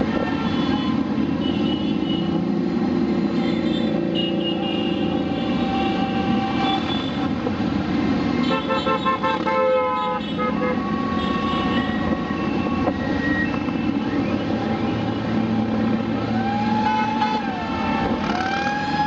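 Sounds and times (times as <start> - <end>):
motorcycle horns honking: 8.4 - 12.2.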